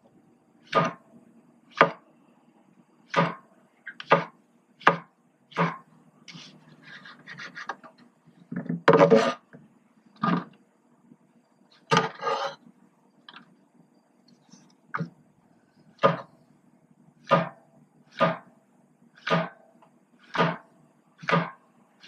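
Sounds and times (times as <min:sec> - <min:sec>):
knife scraping across board: 0:06.3 - 0:07.9, 0:08.9 - 0:09.5, 0:11.8 - 0:12.6
knife cutting on plastic board: 0:11.9 - 0:12.6.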